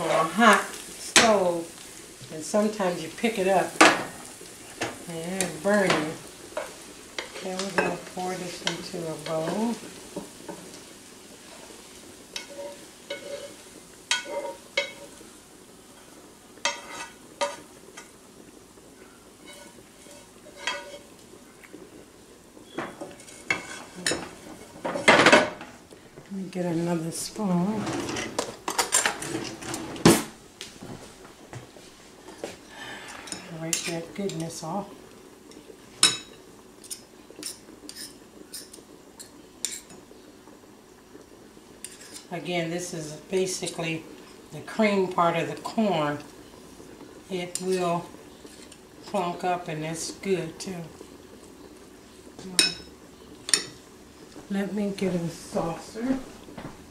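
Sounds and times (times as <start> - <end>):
food sizzling: 0.0 - 56.9
metal spoon scraping a skillet: 12.4 - 15.2, 16.6 - 18.1, 19.4 - 21.1, 22.8 - 25.1, 36.0 - 38.8, 41.8 - 42.3, 47.5 - 48.8.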